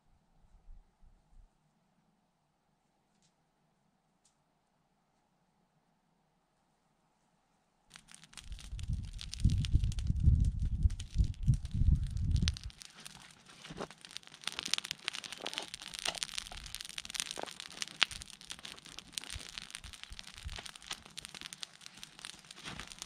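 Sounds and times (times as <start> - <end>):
campfire crackling and popping: 7.9 - 23.0.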